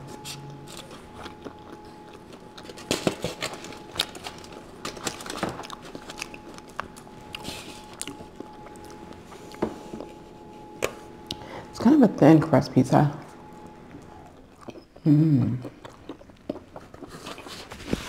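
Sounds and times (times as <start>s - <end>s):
foil crinkling: 2.6s - 8.2s.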